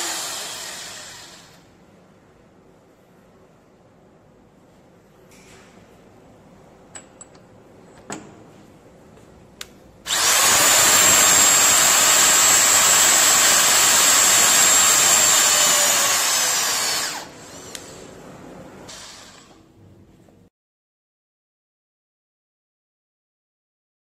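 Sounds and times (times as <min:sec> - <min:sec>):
electric torque wrench whining: 0:00.0 - 0:01.6, 0:10.1 - 0:18.1.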